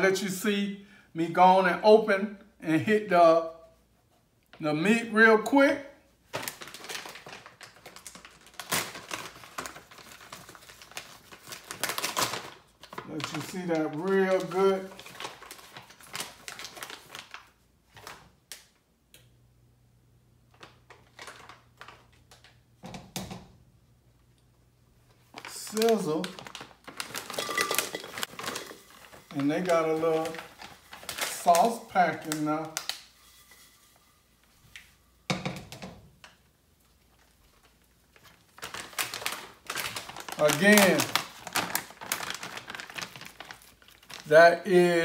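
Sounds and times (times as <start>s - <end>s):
plastic bag rustling and crinkling: 6.2s - 18.4s, 20.5s - 22.6s, 25.0s - 35.3s, 36.2s - 45.0s.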